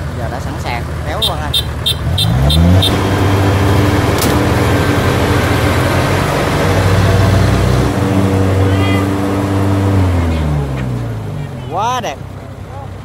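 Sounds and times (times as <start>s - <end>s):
diesel engine revving: 0.0s - 13.0s
short electronic beeps: 1.2s - 3.0s.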